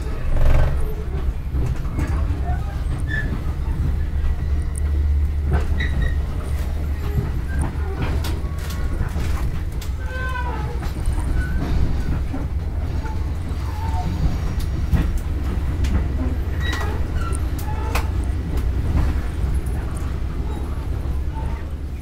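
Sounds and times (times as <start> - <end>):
faint passenger voices: 0.0 - 5.6
train rumble: 0.0 - 22.0
wheels clicking over track: 0.0 - 22.0.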